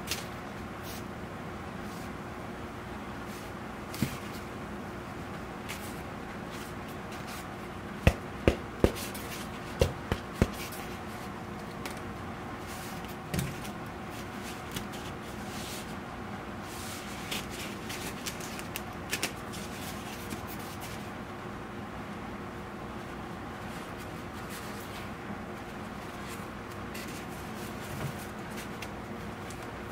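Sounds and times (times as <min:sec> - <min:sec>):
sharp taps and knocks: 0:08.1 - 0:09.2, 0:09.8 - 0:10.7.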